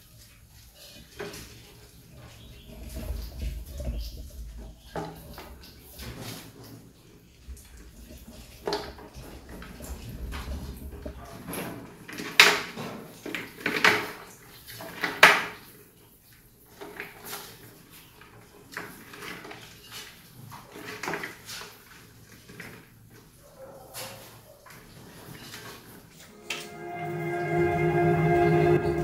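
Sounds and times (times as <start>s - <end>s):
rodents scrambling on plastic: 0.9s - 15.6s, 16.7s - 23.3s.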